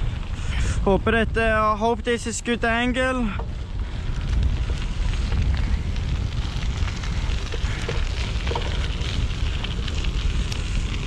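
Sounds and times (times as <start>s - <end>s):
wind rumbling on microphone: 0.0s - 11.0s
tyre and road noise: 3.0s - 11.0s.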